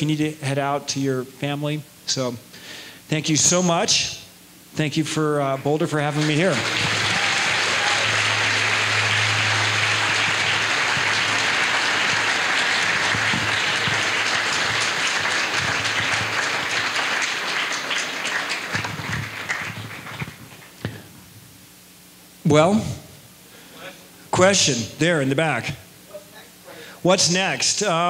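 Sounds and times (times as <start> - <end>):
audience applauding: 6.1 - 20.8.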